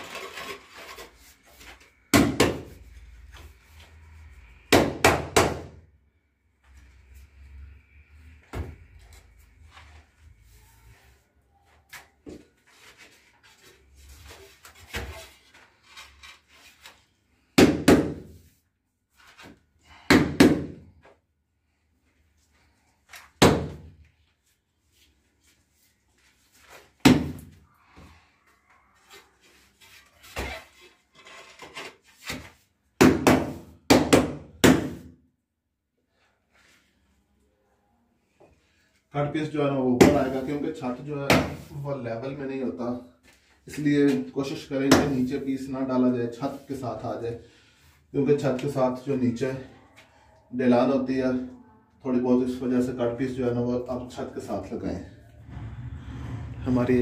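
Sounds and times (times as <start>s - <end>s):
faint scraping and handling: 0.0s - 2.1s, 6.6s - 17.4s, 27.6s - 32.8s.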